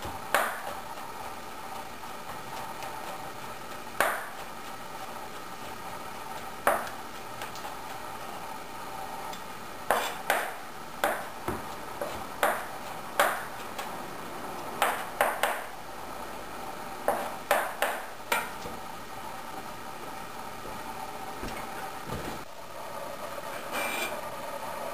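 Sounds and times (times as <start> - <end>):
steady background hum: 0.0 - 24.9
knife chopping on cutting board: 4.0 - 4.4, 9.9 - 13.8, 17.1 - 18.5.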